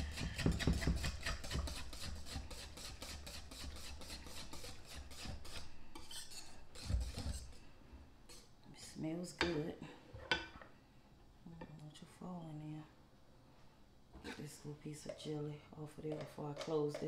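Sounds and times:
whisk scraping glass bowl: 0:00.0 - 0:07.6.

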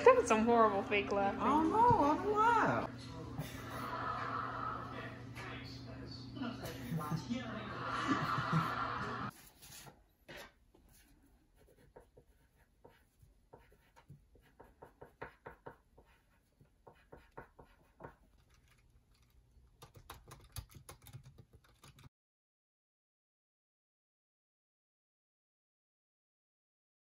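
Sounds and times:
pencil scratching on paper: 0:09.3 - 0:20.6
laptop keyboard clicks: 0:18.5 - 0:22.1.

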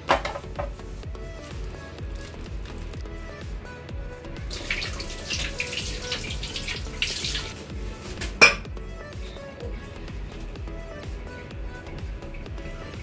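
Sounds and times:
upbeat dance music: 0:00.0 - 0:13.0
kitchen tap running: 0:04.5 - 0:07.7.

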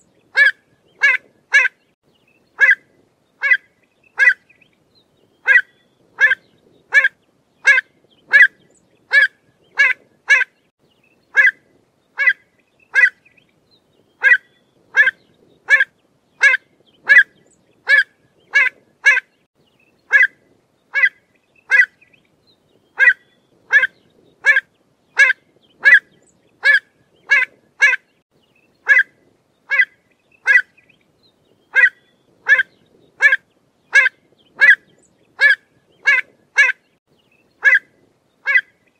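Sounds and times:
avocet calling: 0:00.0 - 0:01.8, 0:02.6 - 0:02.8, 0:03.4 - 0:04.6, 0:05.4 - 0:10.6, 0:11.3 - 0:11.6, 0:12.2 - 0:13.4, 0:14.2 - 0:19.3, 0:20.1 - 0:22.1, 0:23.0 - 0:28.1, 0:28.8 - 0:29.1, 0:29.7 - 0:30.9, 0:31.7 - 0:36.8, 0:37.6 - 0:38.9.

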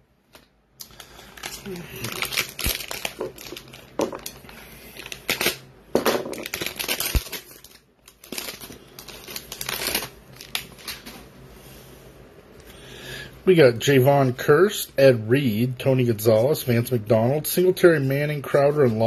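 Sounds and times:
foil wrapper crinkling and tearing: 0:00.3 - 0:05.6, 0:06.3 - 0:11.2.

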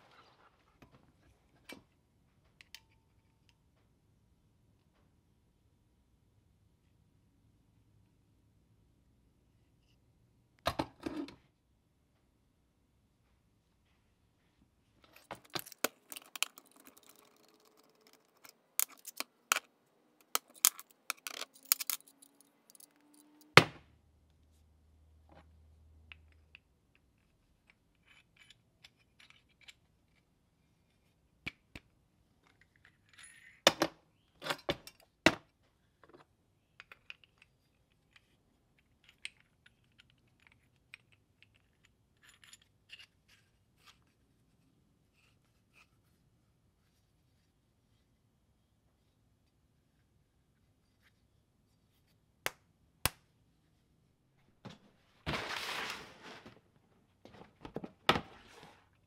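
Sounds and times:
metal parts clinking on plate: 0:15.3 - 0:23.4.

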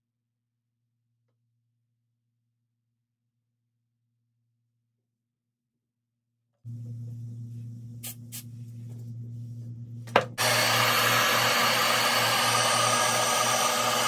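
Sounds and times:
low steady hum: 0:06.7 - 0:11.6
hair dryer blowing: 0:10.4 - 0:14.0.

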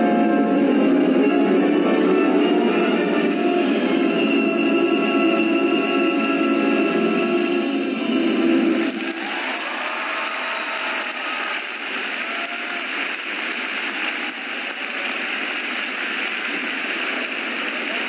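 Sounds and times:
crowd applauding: 0:05.9 - 0:18.0.

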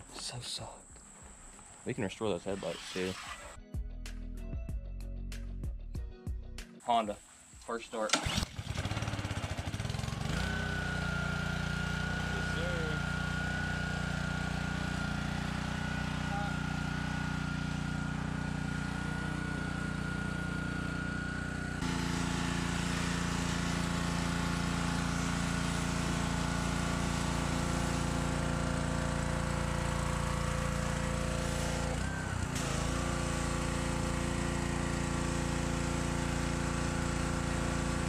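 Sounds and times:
water jet hissing: 0:00.0 - 0:03.6, 0:21.8 - 0:38.0
pressure washer engine running: 0:02.0 - 0:03.6, 0:08.0 - 0:38.0.

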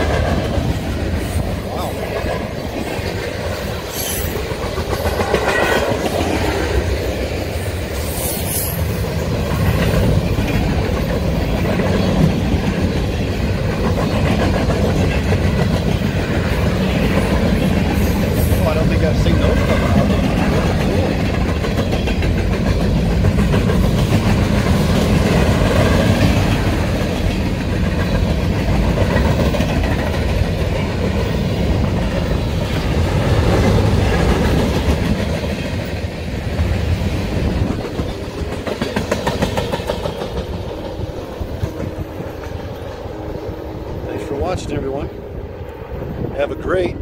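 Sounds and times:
train wheels rumbling and clacking: 0:00.0 - 0:47.0.

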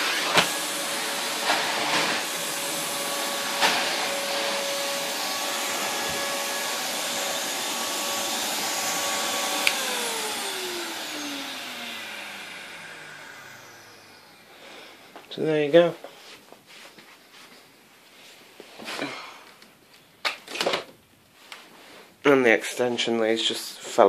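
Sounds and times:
vacuum cleaner running: 0:00.0 - 0:15.7.

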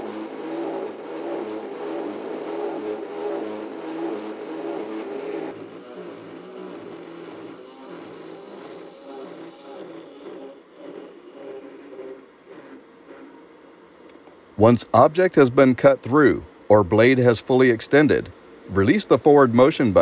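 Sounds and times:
electric saw cutting steel: 0:00.0 - 0:12.2.

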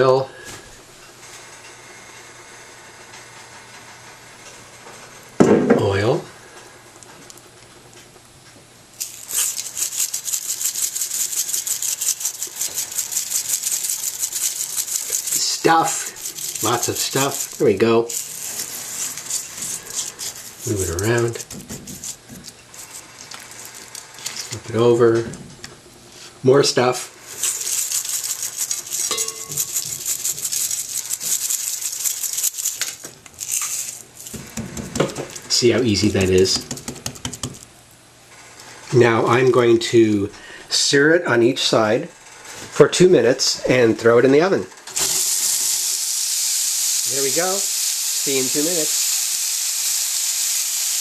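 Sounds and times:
granules pattering onto meat: 0:09.0 - 0:24.5, 0:27.3 - 0:37.6
seasoning rattling in a shaker: 0:09.0 - 0:24.5, 0:27.2 - 0:37.7, 0:45.0 - 0:51.0.

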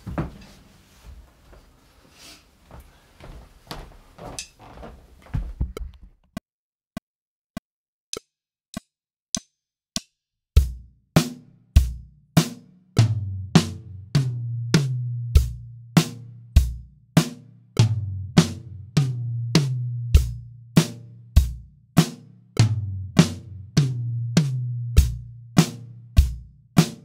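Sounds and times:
knocks and shuffling: 0:00.0 - 0:06.3
drum kit playing rock beat: 0:10.6 - 0:27.0.

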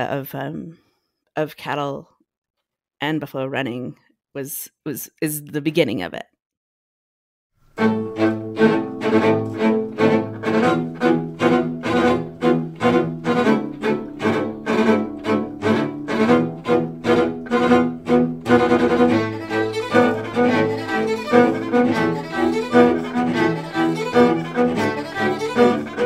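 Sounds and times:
bowed strings with cello: 0:07.8 - 0:26.0.

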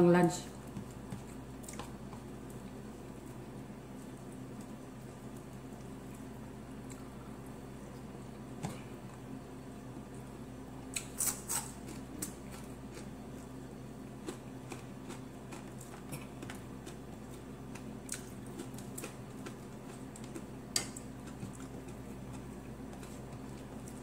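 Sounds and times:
steady low hum: 0:00.0 - 0:24.0
chewing with wet mouth clicks: 0:14.2 - 0:24.0.

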